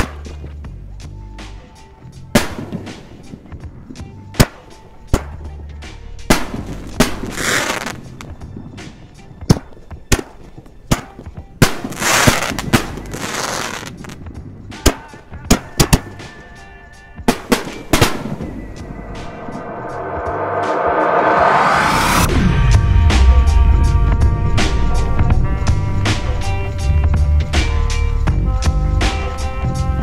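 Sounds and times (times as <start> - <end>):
fireworks bursting with sharp bangs: 2.4 - 3.4, 4.4 - 5.4, 6.3 - 9.0, 10.1 - 14.2, 14.8 - 16.3, 17.3 - 18.8
fireworks hissing and crackling: 6.3 - 9.2, 11.6 - 14.2.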